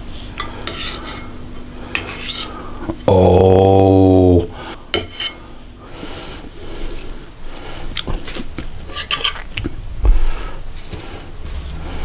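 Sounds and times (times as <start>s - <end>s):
metal utensils clinking on plate: 0.4s - 1.4s.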